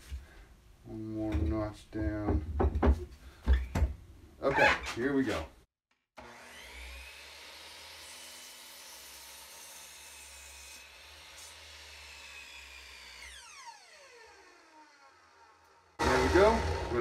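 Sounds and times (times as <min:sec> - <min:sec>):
miter saw cutting wood: 0:06.2 - 0:17.0.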